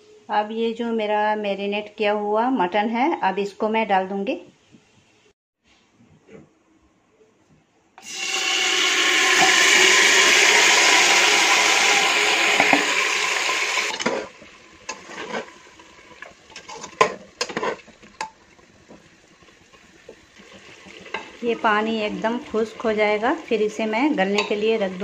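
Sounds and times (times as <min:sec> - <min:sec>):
meat sizzling in hot oil: 0:08.0 - 0:25.0
spatula scraping metal pot: 0:13.8 - 0:18.4, 0:20.4 - 0:25.0.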